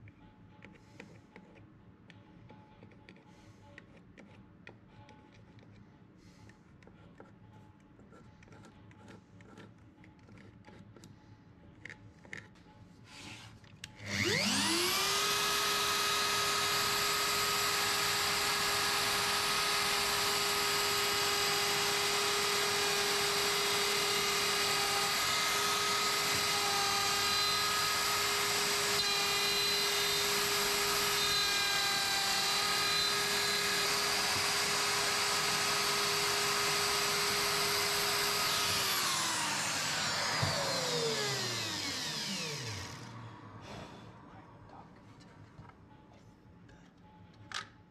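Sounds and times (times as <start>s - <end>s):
router motor routing wood: 14.0s - 43.3s.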